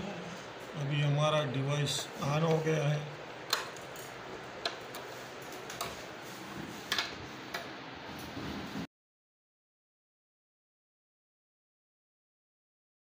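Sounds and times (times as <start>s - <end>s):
steady low hiss: 0.0s - 8.9s.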